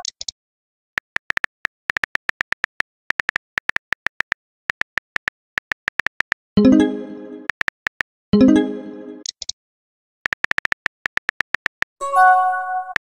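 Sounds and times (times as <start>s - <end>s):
phone keyboard typing clicks: 10.3s - 12.0s
plucked-sounding chime: 12.0s - 12.9s.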